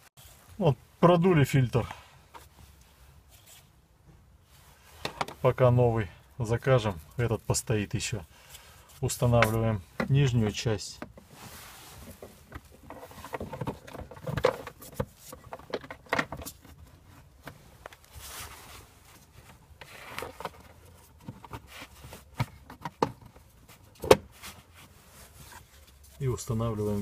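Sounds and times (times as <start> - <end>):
plastic scraping and rubbing: 11.2 - 18.7, 19.3 - 24.1.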